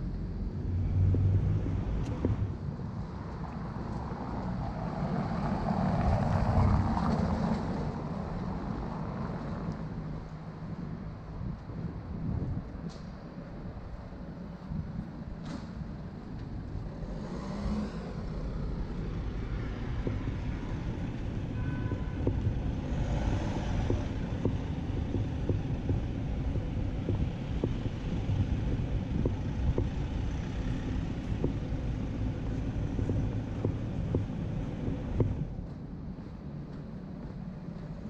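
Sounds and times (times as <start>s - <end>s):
low city rumble: 0.0s - 38.0s
footsteps on stone paving: 20.0s - 38.0s.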